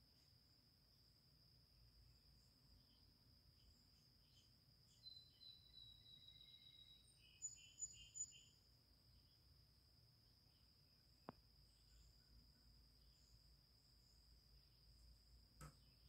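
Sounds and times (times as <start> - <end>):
insect trill: 0.0 - 16.0
bird whistle and chirps: 4.9 - 8.6.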